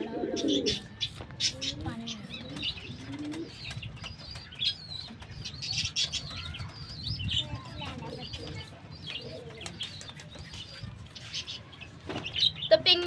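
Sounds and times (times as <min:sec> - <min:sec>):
pigeon cooing: 0:00.0 - 0:03.6
birds chirping and calling: 0:00.0 - 0:13.0.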